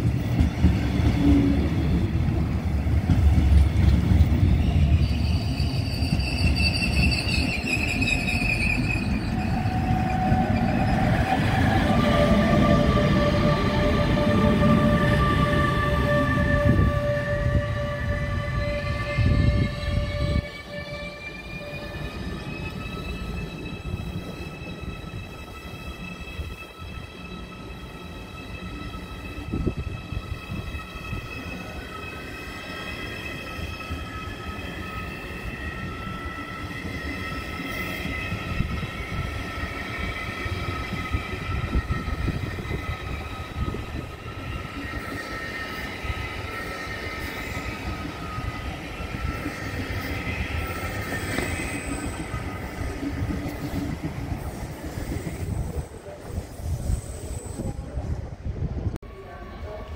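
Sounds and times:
wheels rumbling on rails: 0.0 - 17.6
electric train whine: 0.0 - 59.9.

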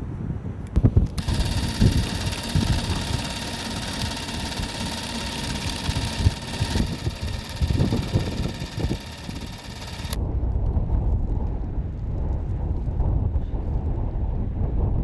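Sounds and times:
wind rumble on microphone: 0.0 - 1.2, 10.2 - 15.0
film projector clatter and whine: 1.1 - 10.2.

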